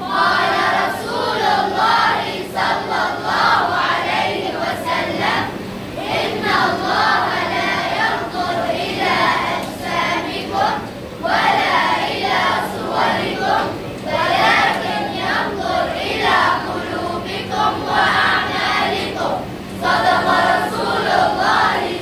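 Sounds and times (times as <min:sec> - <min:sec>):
boys chanting in unison: 0:00.0 - 0:22.0.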